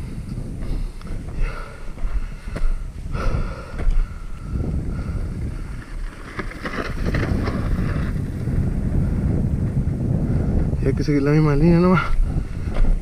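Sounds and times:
wind buffeting microphone: 0.0 - 13.0
mountain bike rattling over rocks: 4.8 - 8.9.

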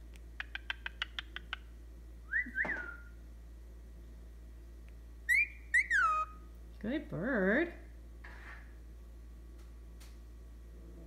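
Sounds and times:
cockatiel whistling: 2.3 - 3.1, 5.3 - 6.4.

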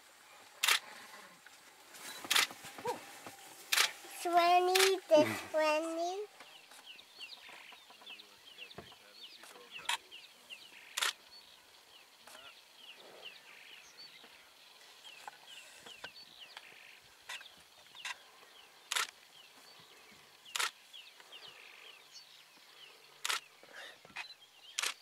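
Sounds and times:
camera shutter clicking: 0.6 - 0.8, 3.7 - 3.9, 18.9 - 19.1, 24.8 - 25.0.

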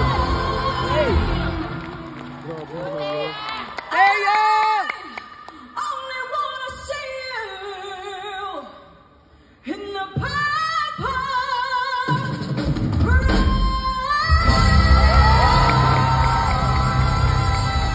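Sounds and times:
woman singing with vibrato: 0.0 - 2.1, 5.7 - 17.9
bass and drums: 12.1 - 17.9.

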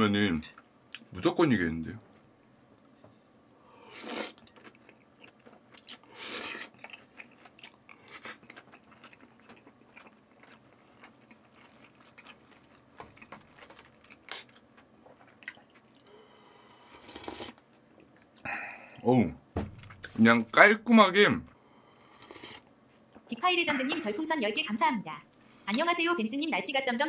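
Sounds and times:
wet chewing: 4.2 - 16.1
slurping soup: 16.8 - 17.6.

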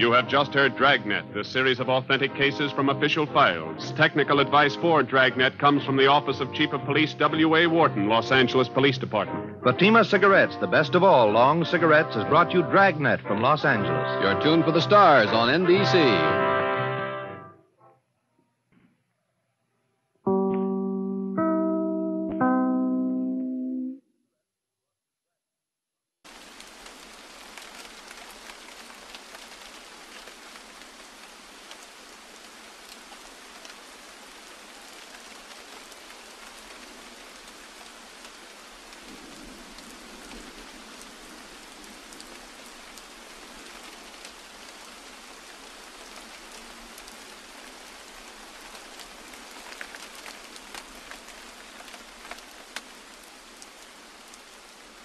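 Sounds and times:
steady rain falling: 0.0 - 17.2, 26.2 - 55.0.

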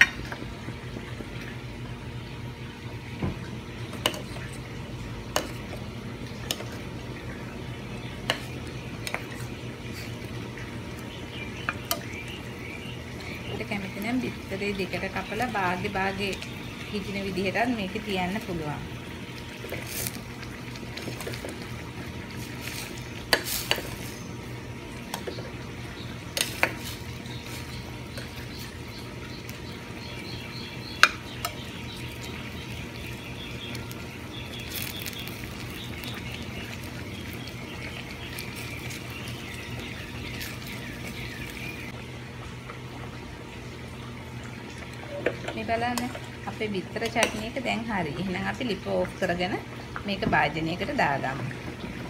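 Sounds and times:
sauce simmering and bubbling: 0.0 - 46.6.

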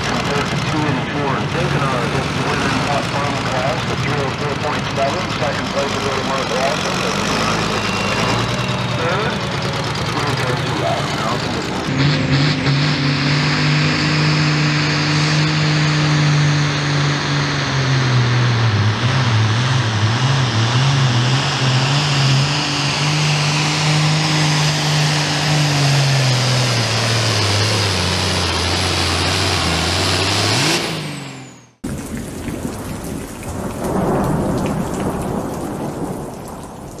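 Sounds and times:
diesel tractor engine at full power: 0.0 - 37.0
loud rumbling noise: 0.0 - 37.0.

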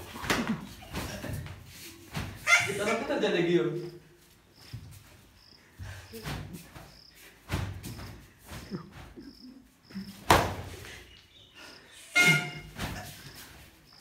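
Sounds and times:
scuffling and thumps of players: 0.0 - 3.0, 4.2 - 9.4, 10.0 - 11.3, 12.2 - 14.0
sharp smack: 10.3 - 10.7.

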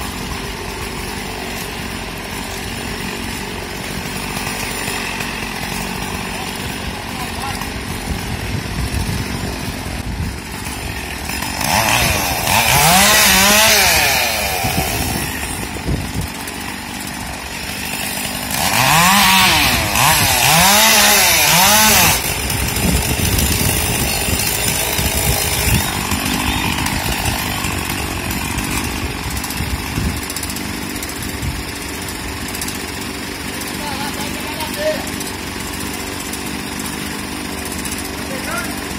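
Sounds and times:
chainsaw idling and revving: 0.0 - 38.9.

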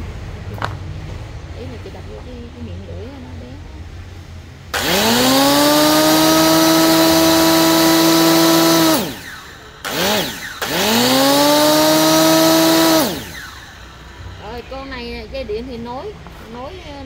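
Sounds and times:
electric saw motor whine: 4.8 - 15.0.

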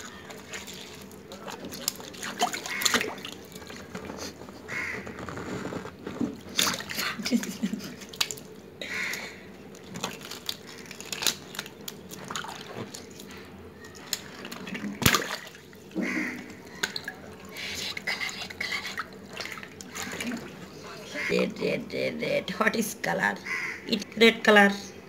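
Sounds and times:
water splashing and dripping: 0.0 - 4.2, 6.3 - 21.3.

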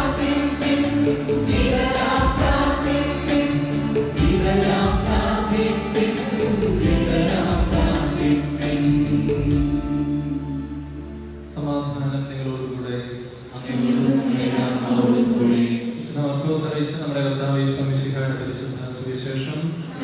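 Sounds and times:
choir singing a hymn: 0.0 - 10.7, 13.5 - 16.1, 19.8 - 20.0
percussion strokes: 0.0 - 11.0
instrumental accompaniment: 0.0 - 12.2.

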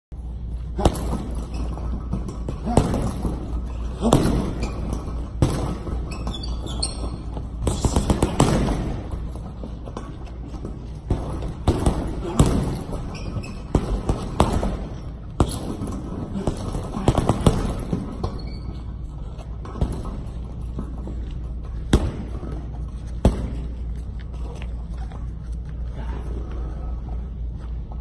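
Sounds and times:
steady low hum: 0.1 - 28.0
gloves striking punching bag: 0.8 - 6.2, 7.6 - 9.4, 10.0 - 18.3.

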